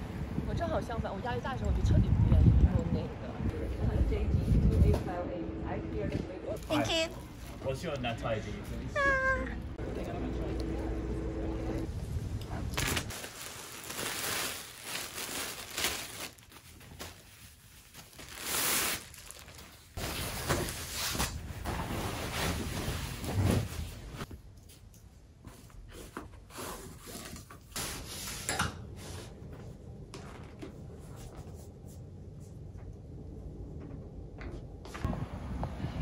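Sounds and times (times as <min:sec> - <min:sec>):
plastic packaging crinkling: 0:12.8 - 0:20.8.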